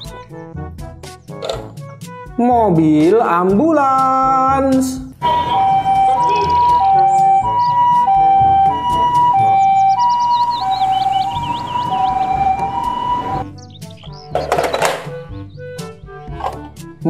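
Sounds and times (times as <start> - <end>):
two-tone electronic siren: 5.2 - 13.5.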